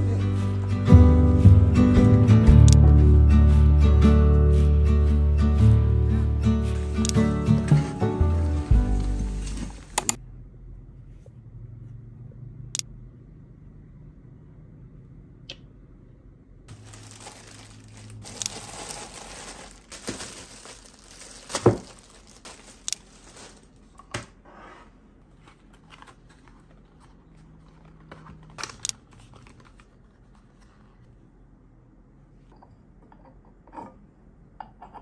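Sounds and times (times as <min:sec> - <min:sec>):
packaging crinkling and tearing: 0:06.8 - 0:10.2, 0:16.7 - 0:24.0.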